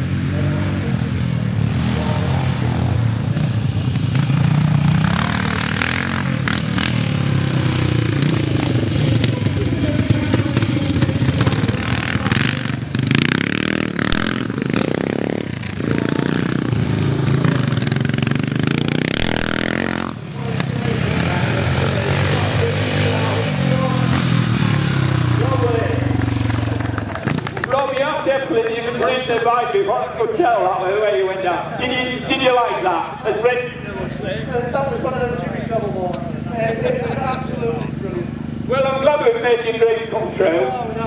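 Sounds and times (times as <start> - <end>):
motorcycle engine revving: 0.0 - 27.9.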